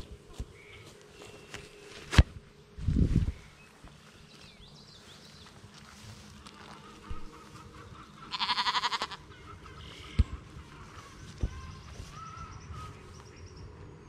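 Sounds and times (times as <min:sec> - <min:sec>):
lamb bleating: 0:08.3 - 0:09.2.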